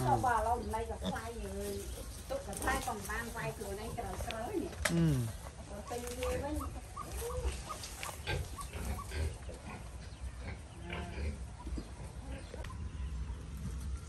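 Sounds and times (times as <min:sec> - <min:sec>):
pigs grunting: 0:00.0 - 0:02.1, 0:08.1 - 0:12.6.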